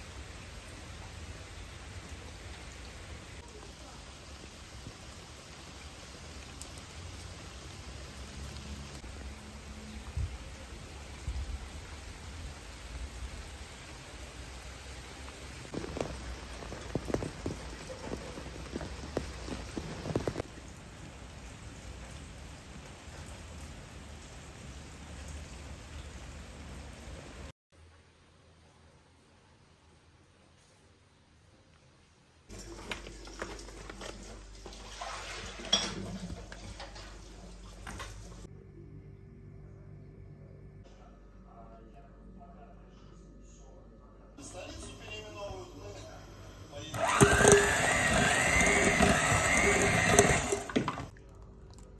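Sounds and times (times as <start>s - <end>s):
rain on foliage: 0.0s - 27.5s
coffee bag crinkling: 15.7s - 20.4s
low steady hum: 36.9s - 47.4s.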